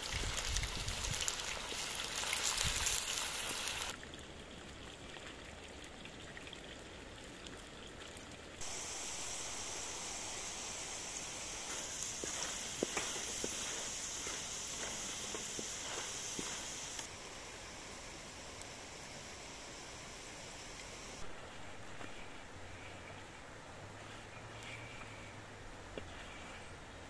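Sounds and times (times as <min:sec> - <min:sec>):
fries sizzling in hot oil: 0:00.0 - 0:04.0, 0:08.6 - 0:23.1.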